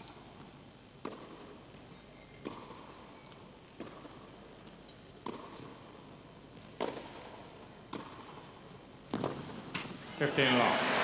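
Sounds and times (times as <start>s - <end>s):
tennis ball struck by rackets: 1.0s - 1.5s, 2.4s - 2.9s, 3.8s - 4.4s, 5.2s - 5.9s, 6.8s - 8.5s, 9.1s - 10.0s.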